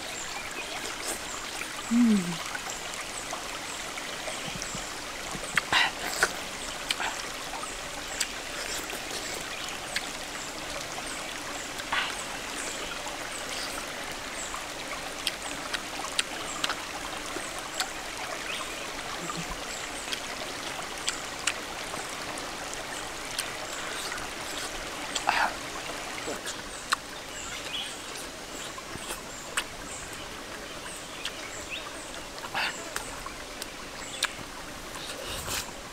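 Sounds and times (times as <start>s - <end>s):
stream rushing: 0.0s - 35.9s.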